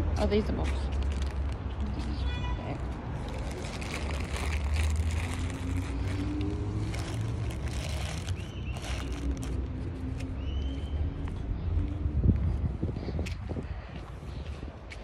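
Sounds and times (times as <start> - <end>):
wind buffeting microphone: 11.2 - 15.0.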